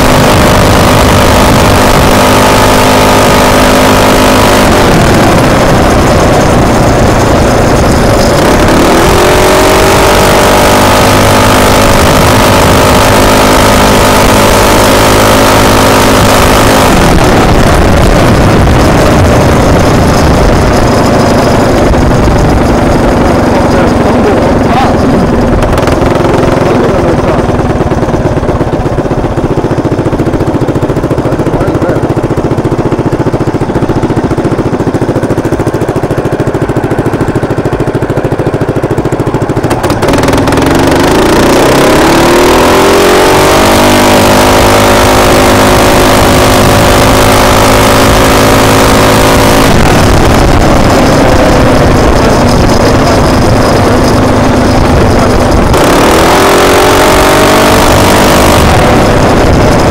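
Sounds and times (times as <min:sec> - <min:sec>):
motorbike engine revving: 0:00.0 - 0:59.9
wind on microphone: 0:16.0 - 0:31.7, 0:44.7 - 0:59.9.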